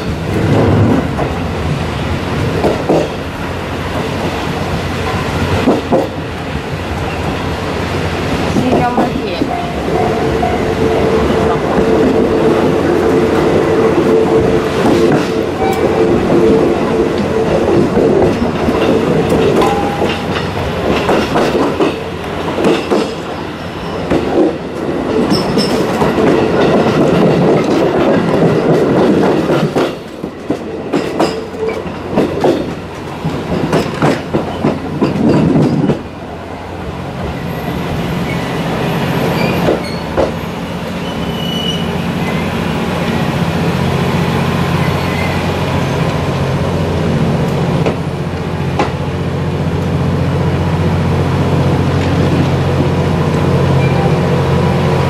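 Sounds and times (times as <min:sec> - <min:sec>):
wheels clattering over rail joints: 0:08.5 - 0:36.1
wheel squeal: 0:37.4 - 0:42.5, 0:44.8 - 0:45.4.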